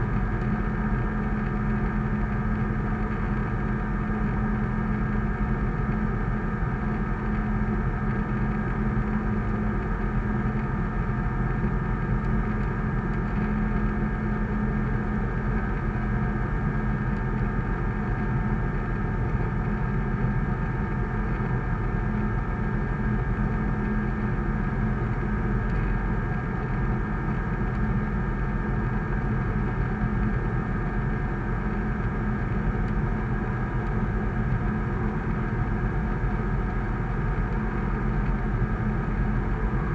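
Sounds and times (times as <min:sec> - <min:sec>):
light aircraft engine drone in cockpit: 0:00.0 - 0:39.9.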